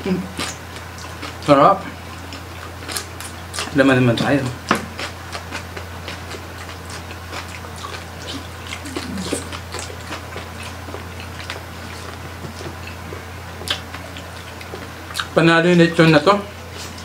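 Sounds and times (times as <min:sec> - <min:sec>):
low electrical hum: 0:00.0 - 0:17.0
chewing and lip-smacking: 0:00.1 - 0:15.4
person humming: 0:08.8 - 0:09.5.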